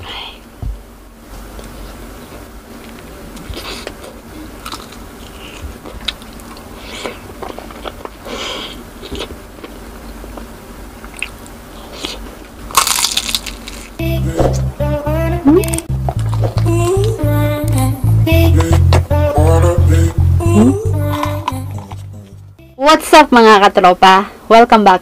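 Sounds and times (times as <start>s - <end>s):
chewing and mouth clicks: 3.4s - 8.2s, 9.0s - 13.8s
loud crunchy bite: 3.4s - 8.2s, 11.0s - 14.0s
music with heavy beat: 18.0s - 21.6s.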